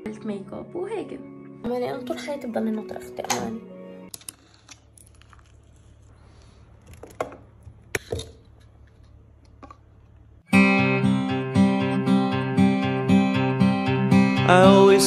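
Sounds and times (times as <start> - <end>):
acoustic guitar music: 10.5 - 15.0.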